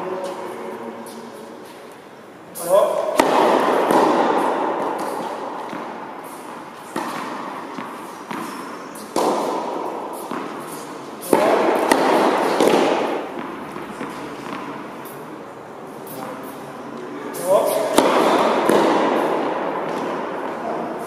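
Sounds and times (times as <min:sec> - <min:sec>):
tennis ball impacts echoing: 0:02.6 - 0:15.6, 0:17.3 - 0:21.0.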